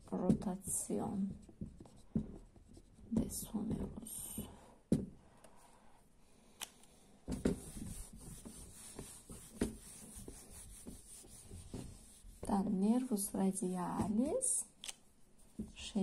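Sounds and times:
eraser scrubbing whiteboard: 7.4 - 12.7.

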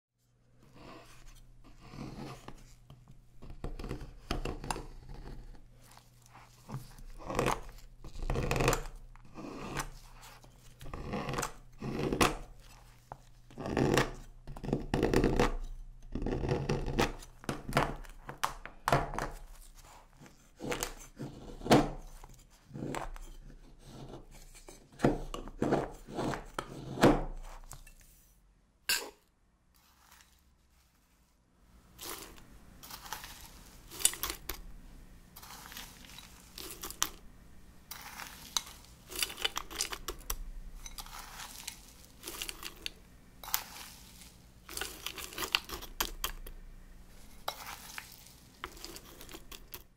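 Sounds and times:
knife scraping chocolate: 0.6 - 18.3, 19.2 - 28.2, 29.7 - 30.4, 31.9 - 34.7, 35.3 - 37.3, 37.9 - 46.5, 47.1 - 49.9.

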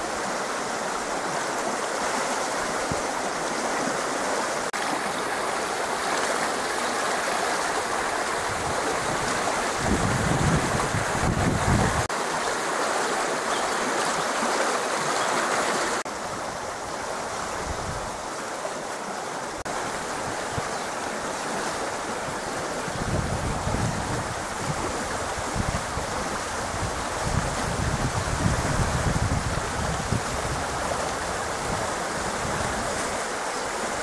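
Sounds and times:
creek water rushing: 0.0 - 34.0
wind rumbling on microphone: 7.7 - 12.1, 16.2 - 18.3, 19.8 - 34.0.

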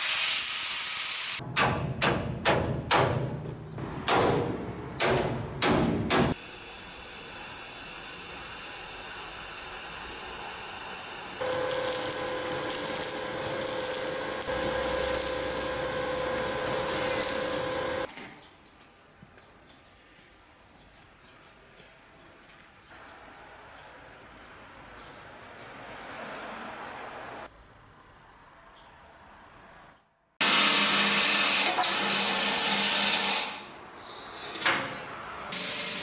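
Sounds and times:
arc welding hissing and crackling: 0.0 - 1.4, 6.4 - 18.1, 35.6 - 36.0
hammer strikes on steel bar: 1.4 - 3.4, 4.0 - 6.4.

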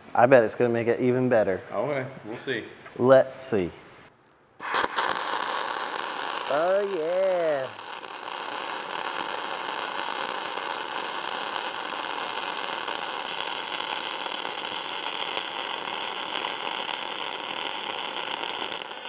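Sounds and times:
welding arc crackling: 4.6 - 19.0.

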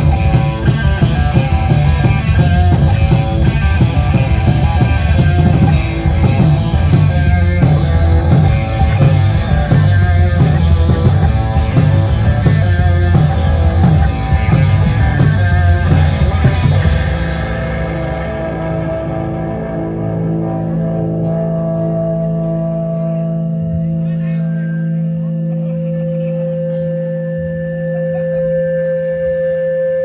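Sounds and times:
steady drum beat: 0.0 - 21.6
metal band playing live: 0.0 - 30.0.

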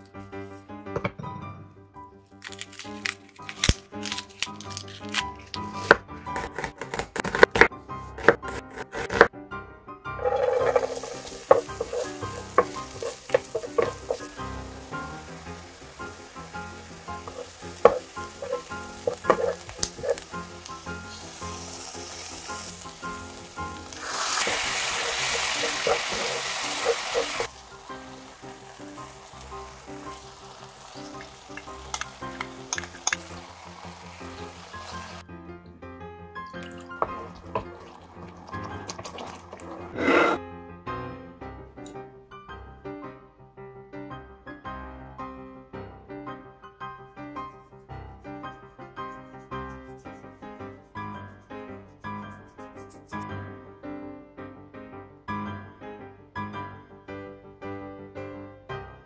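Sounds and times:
soft background music: 0.0 - 59.0
knife chopping onion on wooden board: 5.8 - 9.3, 17.3 - 20.2
wooden spatula scraping pan: 10.2 - 14.4, 17.2 - 20.4, 24.0 - 27.5, 38.7 - 40.4
onion sizzling in frying pan: 10.2 - 35.2, 36.9 - 40.3.

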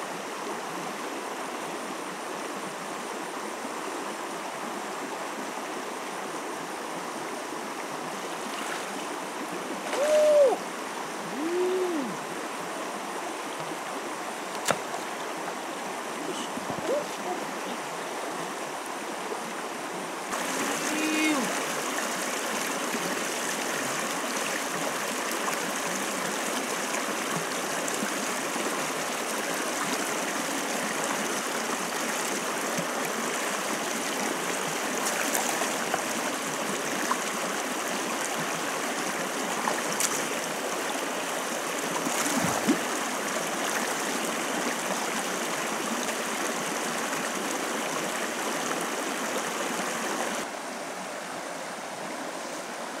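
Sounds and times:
stream splashing over rocks: 4.7 - 50.5.

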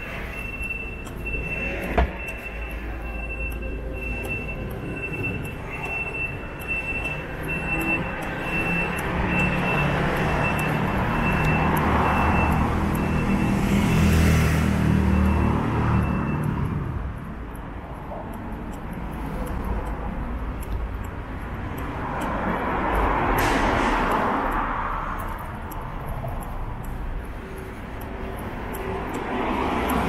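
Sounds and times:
high beeps: 0.0 - 16.7
city street traffic: 0.0 - 30.0
vehicle engine passing by: 7.8 - 16.0.

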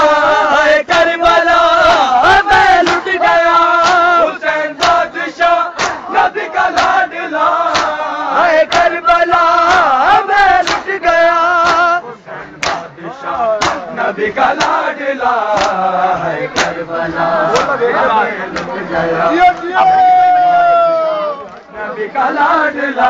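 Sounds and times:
men chanting in chorus: 0.0 - 19.8, 21.7 - 23.0
hands slapping chests: 1.8 - 4.2, 4.8 - 8.0, 8.6 - 12.0, 12.6 - 12.9, 13.6 - 14.9, 15.5 - 15.9, 16.5 - 16.8, 17.5 - 17.8, 18.5 - 18.8.

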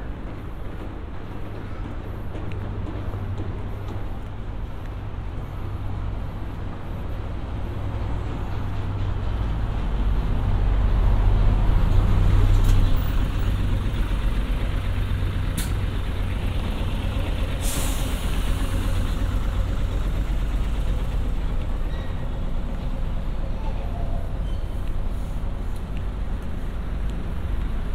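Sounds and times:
bus engine rumbling: 0.0 - 27.9
air brake hiss: 17.5 - 19.0.

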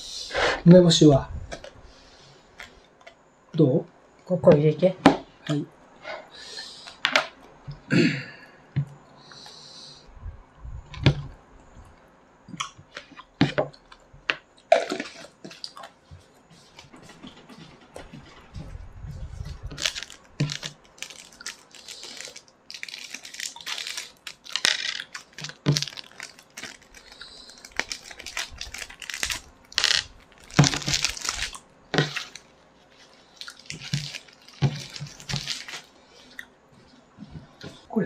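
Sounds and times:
medicine packaging crinkling and tearing: 14.6 - 16.0, 19.3 - 36.4.

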